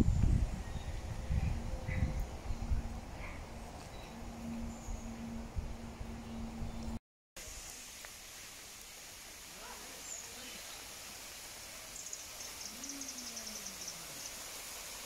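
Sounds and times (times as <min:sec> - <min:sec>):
waterfall splashing into pond: 0:07.4 - 0:15.0
faint bird twittering: 0:12.0 - 0:14.4.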